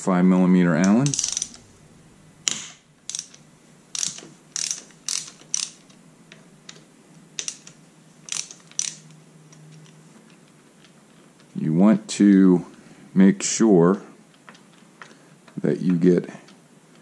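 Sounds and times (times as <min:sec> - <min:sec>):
socket ratchet clicking: 0:00.8 - 0:01.7, 0:02.5 - 0:06.0, 0:07.4 - 0:09.2.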